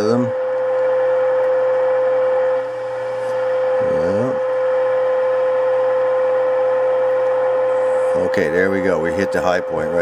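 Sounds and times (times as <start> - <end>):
low hum: 0.0 - 10.0
radio test tone: 2.6 - 5.2, 7.5 - 10.0.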